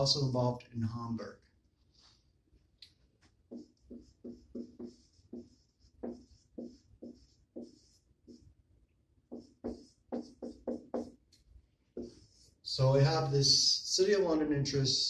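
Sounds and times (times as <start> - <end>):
marker squeaking on whiteboard: 3.3 - 8.6, 9.3 - 12.6.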